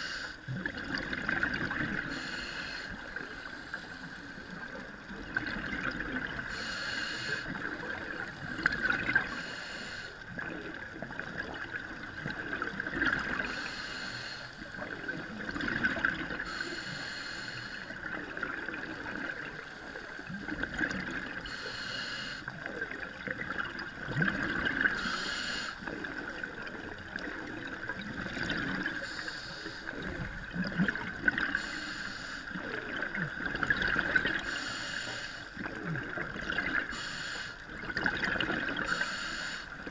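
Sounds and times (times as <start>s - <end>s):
underwater bubbling and gurgling: 0.0s - 39.9s
scuba regulator breath hissing: 2.1s - 4.3s, 6.5s - 7.5s, 9.3s - 10.2s, 13.4s - 14.6s, 16.5s - 17.9s, 21.4s - 22.4s, 25.0s - 25.8s, 29.0s - 29.9s, 31.5s - 32.5s, 34.4s - 35.5s, 36.9s - 37.6s, 38.9s - 39.7s.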